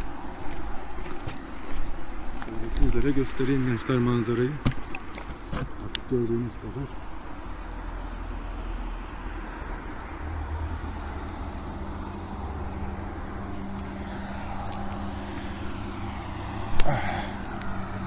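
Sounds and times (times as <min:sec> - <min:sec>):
vehicle engine humming: 0:00.0 - 0:18.0.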